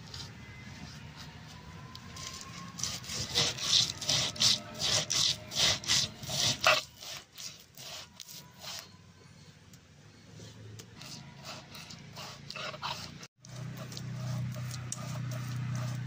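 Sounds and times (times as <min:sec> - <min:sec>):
roller grinding on stone board: 0:02.2 - 0:08.8, 0:11.0 - 0:16.0.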